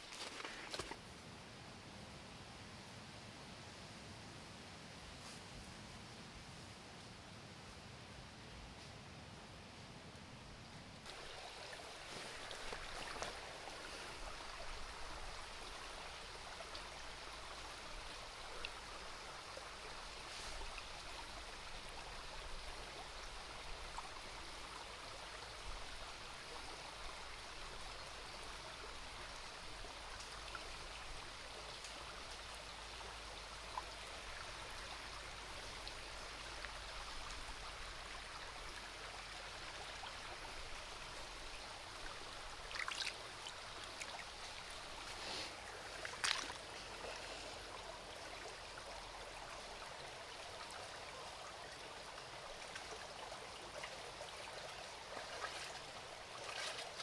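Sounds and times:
stream flowing over stones: 0.0 - 1.1, 11.0 - 57.0
small water splashes: 11.0 - 19.2, 39.5 - 47.5, 52.5 - 57.0.

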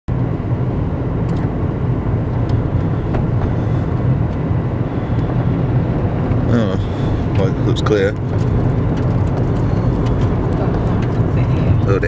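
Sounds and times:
car engine and tyre rumble: 0.1 - 12.0.

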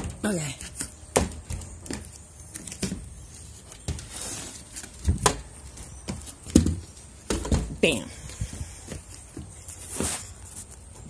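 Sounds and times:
wooden knocks and clunks: 5.0 - 7.9
scraping rustle: 8.4 - 11.0.

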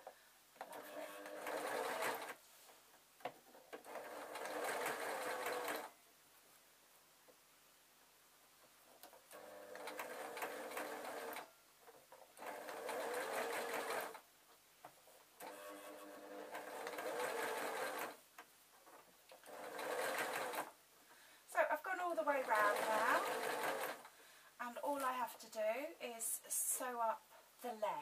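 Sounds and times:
sewing machine stitching: 0.6 - 2.4, 3.7 - 5.9, 9.3 - 11.5, 12.4 - 14.2, 15.4 - 18.2, 19.3 - 20.7, 22.2 - 24.1.

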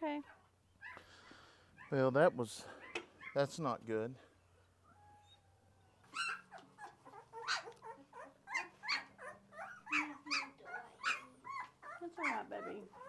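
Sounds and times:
puppies whimpering and squealing: 4.9 - 13.0.

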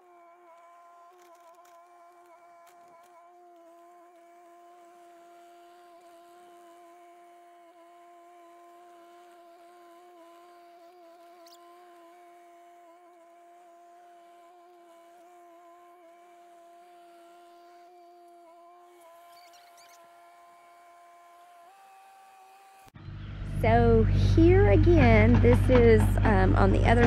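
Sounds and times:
faint excavator whine: 9.3 - 21.8, 22.8 - 27.0.

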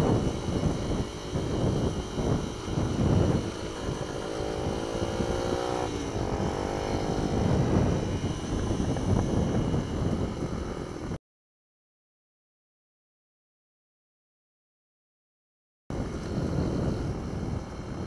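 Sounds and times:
mini-bike engine running: 0.0 - 11.2, 15.9 - 18.0
wind buffeting microphone: 0.0 - 11.2, 15.9 - 18.0.

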